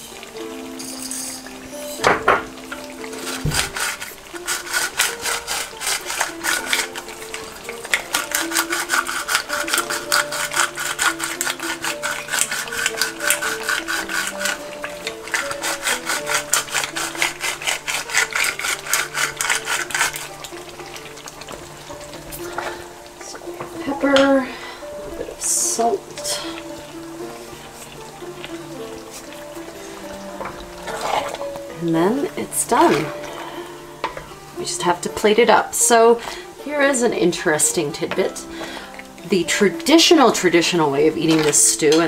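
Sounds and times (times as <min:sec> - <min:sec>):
pepper mill grinding: 0:00.8 - 0:02.0, 0:02.6 - 0:22.6, 0:40.4 - 0:42.0.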